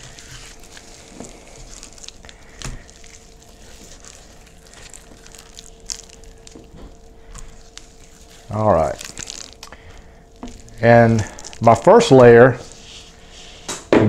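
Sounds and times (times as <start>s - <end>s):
faint steady hum: 0.0s - 14.0s
hand rubbing oil on raw meat: 7.0s - 13.7s.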